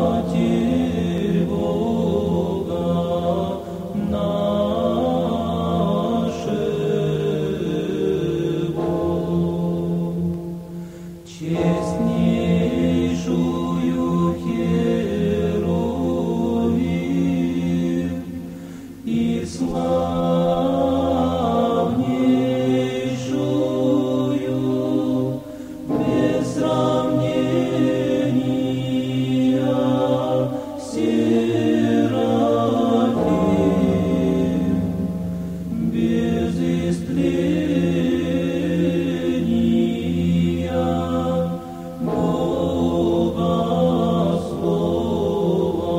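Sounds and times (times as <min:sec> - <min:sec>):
choir chanting in harmony: 0:00.0 - 0:45.9
held low bass note: 0:33.2 - 0:37.6.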